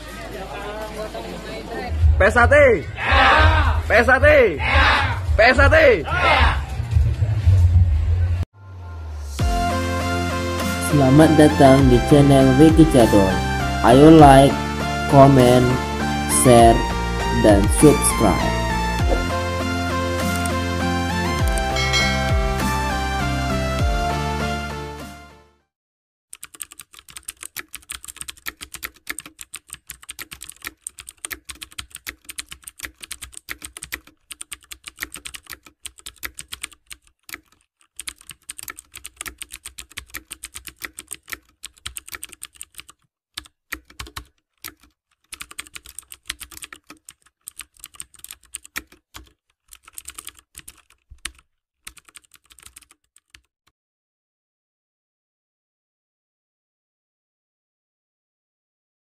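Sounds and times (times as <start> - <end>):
keyboard typing: 20.2 - 20.6, 26.3 - 53.5.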